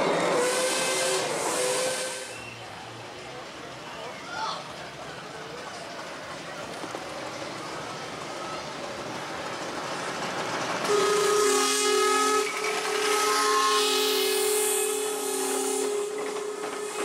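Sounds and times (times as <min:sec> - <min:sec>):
steam locomotive whistle: 0:00.0 - 0:02.7, 0:10.8 - 0:17.0
steam hissing: 0:00.0 - 0:02.8, 0:06.9 - 0:17.0.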